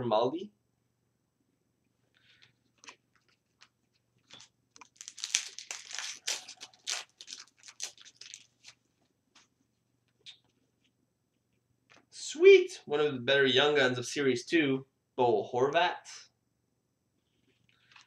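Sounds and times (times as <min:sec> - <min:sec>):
card pack wrapper crinkling and tearing: 0:02.8 - 0:08.8.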